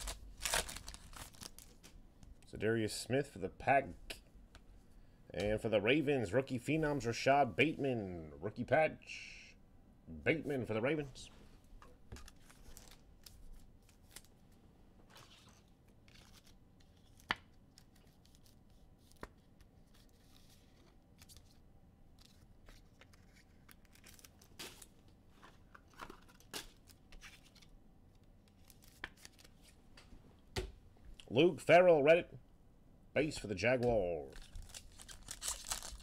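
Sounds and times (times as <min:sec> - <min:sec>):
card pack wrappers rustling and tearing: 0:00.0 - 0:02.0, 0:12.2 - 0:14.5, 0:15.1 - 0:19.2, 0:22.2 - 0:27.7, 0:28.5 - 0:29.8, 0:34.3 - 0:36.0.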